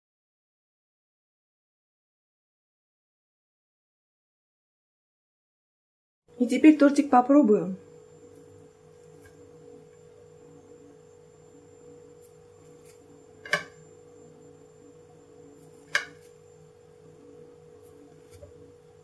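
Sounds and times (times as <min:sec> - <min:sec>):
faint steady hum: 0:06.3 - 0:19.0
fork cutting cake: 0:15.6 - 0:16.4.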